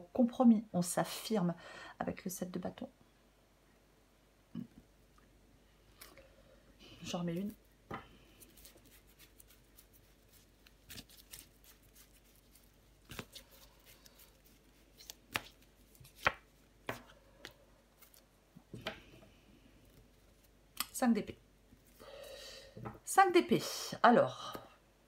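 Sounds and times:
cards being shuffled: 0:08.4 - 0:18.3.

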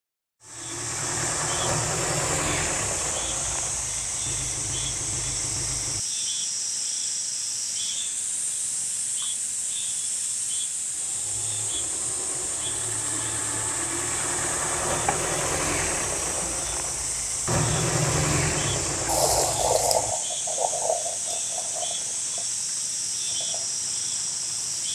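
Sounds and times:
faint chirps: 0:00.4 - 0:06.0, 0:11.0 - 0:24.2
low rumble: 0:00.5 - 0:06.0, 0:11.0 - 0:22.4
high-pitched hissing drone: 0:10.9 - 0:22.6.

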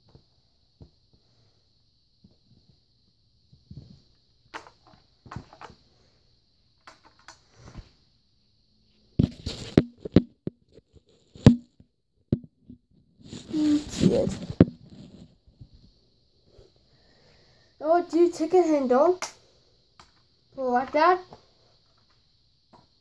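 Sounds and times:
clicks and knocks from plastic parts: 0:04.6 - 0:05.8, 0:06.8 - 0:07.4.

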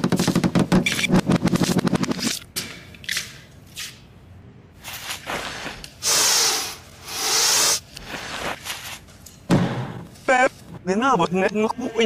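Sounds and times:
harsh hissing bursts: 0:06.0 - 0:08.6.

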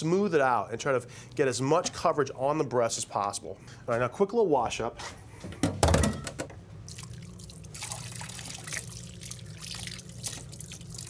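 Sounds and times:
steady low hum: 0:00.0 - 0:11.0
tap water running: 0:06.9 - 0:11.0.

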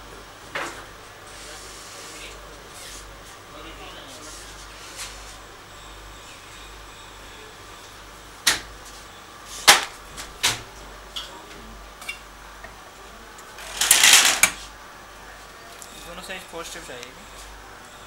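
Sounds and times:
machine rattling clatter: 0:13.6 - 0:14.6.

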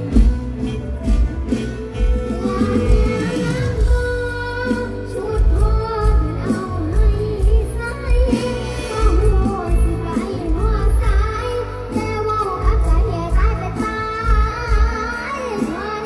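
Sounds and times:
live band with heavy bass beat: 0:00.0 - 0:16.0
girl singing into a microphone: 0:02.0 - 0:16.0.

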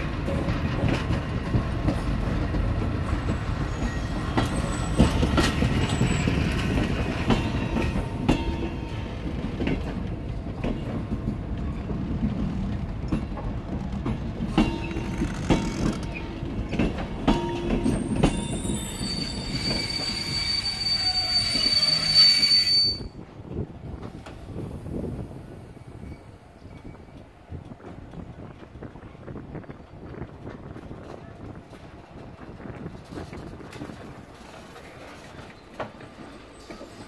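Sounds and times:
train coaches rumbling on rails: 0:00.0 - 0:37.0
high wheel squeal: 0:03.6 - 0:06.8, 0:17.8 - 0:23.1
wheel clicks over rail joints: 0:13.1 - 0:18.4.

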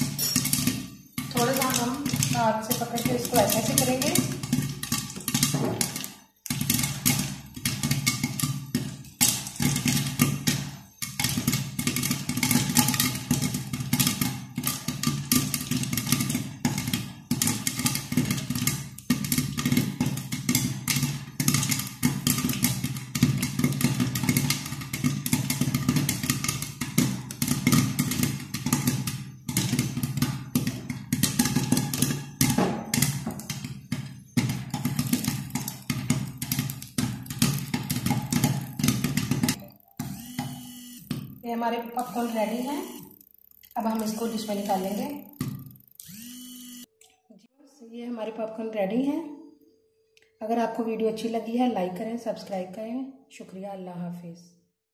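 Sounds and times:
pan and lid rattling: 0:00.0 - 0:39.6
popcorn popping: 0:00.0 - 0:47.1.

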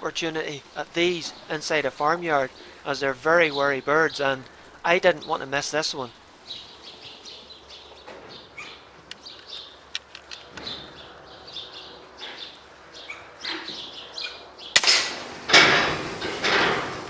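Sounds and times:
farmyard birds calling: 0:00.0 - 0:17.0
sharp clicks: 0:09.0 - 0:10.7.

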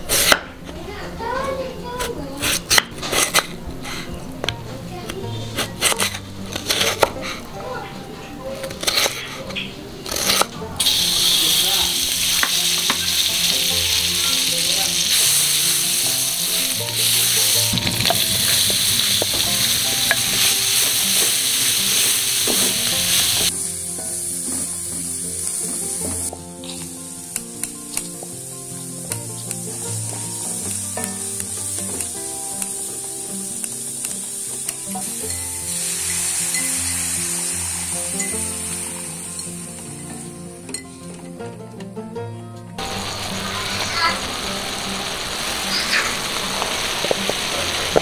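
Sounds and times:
onion sizzling in butter: 0:00.0 - 0:00.6, 0:01.2 - 0:40.6, 0:42.8 - 0:48.0.

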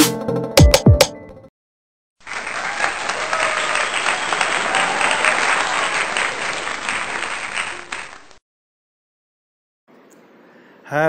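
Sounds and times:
crowd applause: 0:02.2 - 0:08.4.

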